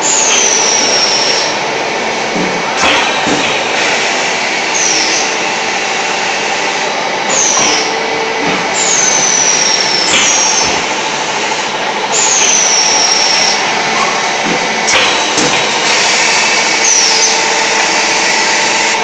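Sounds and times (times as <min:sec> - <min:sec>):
high squeal: 0:00.0 - 0:01.6, 0:04.6 - 0:05.5, 0:08.8 - 0:10.8, 0:12.2 - 0:14.3, 0:15.8 - 0:18.9
factory machinery din: 0:00.0 - 0:19.0.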